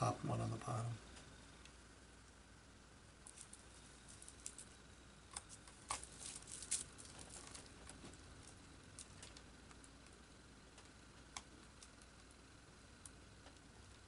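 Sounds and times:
plastic bag crinkling: 5.5s - 9.4s.

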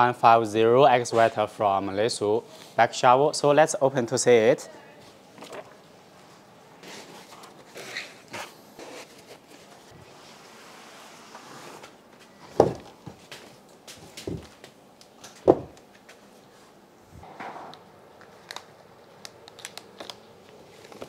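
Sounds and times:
heavy model knocking and bumping: 15.4s - 15.8s
plastic bags crinkling: 18.2s - 21.0s.

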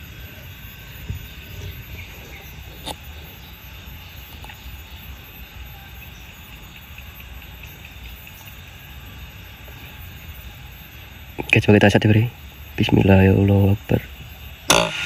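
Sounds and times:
faint ticks: 0.0s - 5.4s, 6.0s - 10.0s
sharp click: 14.7s - 15.0s.

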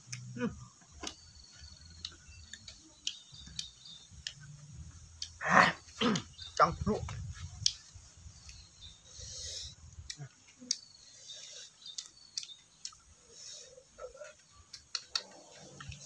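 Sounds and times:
pod shells cracking and snapping: 14.7s - 16.0s.

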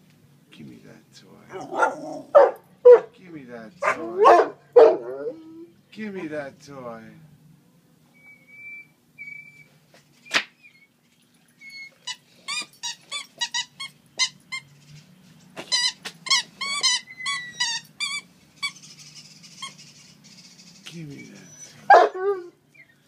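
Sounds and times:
squeaky dog toy squeaking: 11.7s - 14.7s, 15.6s - 18.8s.

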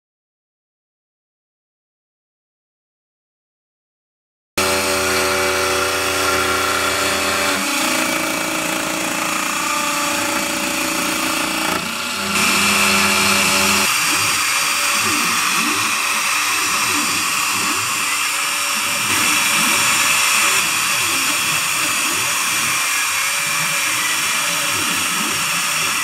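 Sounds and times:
router spindle whining: 4.6s - 26.0s
machine drive tones: 8.3s - 26.0s.

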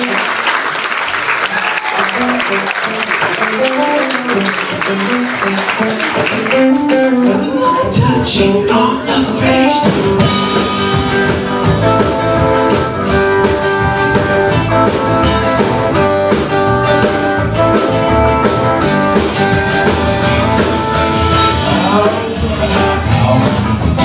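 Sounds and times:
acoustic guitar: 0.0s - 0.5s, 1.1s - 24.0s
second guitar: 1.4s - 24.0s
drum kit with cymbal hits: 9.2s - 24.0s.

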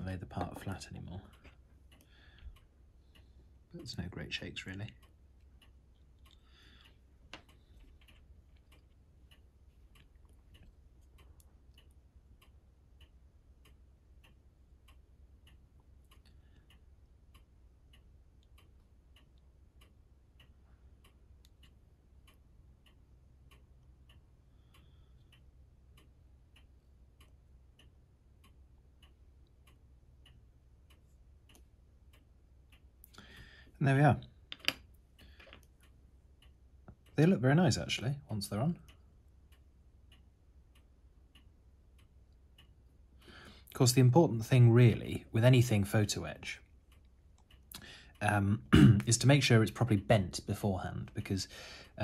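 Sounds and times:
faint even ticking: 0.0s - 49.6s
click: 26.0s - 33.2s.

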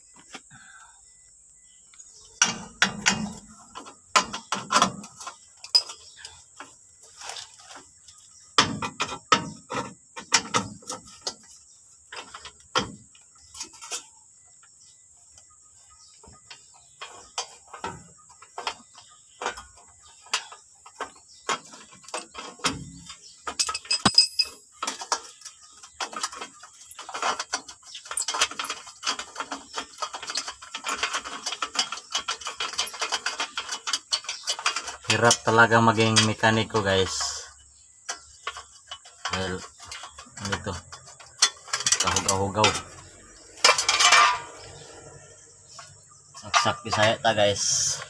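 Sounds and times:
metallic clicks and rattles: 16.4s - 37.4s, 38.1s - 48.0s.

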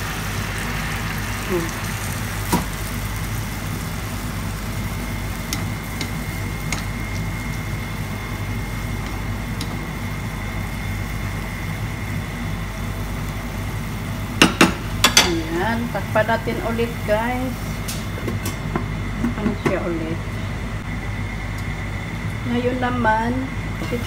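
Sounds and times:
broth simmering in a pan: 0.0s - 18.3s
steady mechanical hum: 0.0s - 24.0s.

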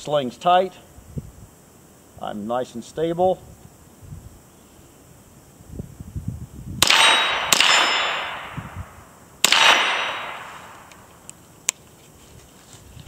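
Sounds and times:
steel target ringing clang: 6.8s - 8.6s
rifle shots: 6.8s - 8.8s, 9.4s - 10.9s.

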